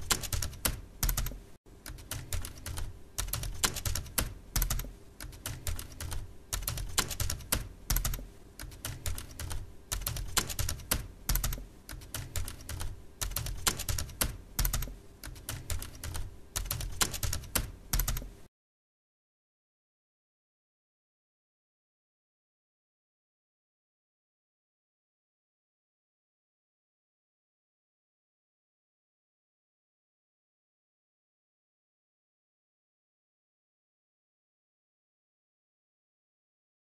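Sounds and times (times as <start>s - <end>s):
keyboard typing: 0.0s - 18.5s.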